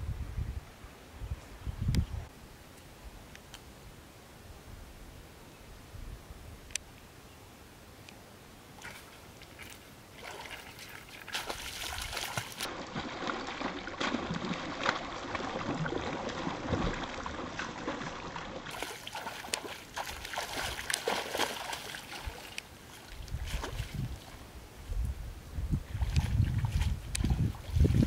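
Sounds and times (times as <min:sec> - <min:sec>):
fish splashing in water: 0:08.8 - 0:24.0.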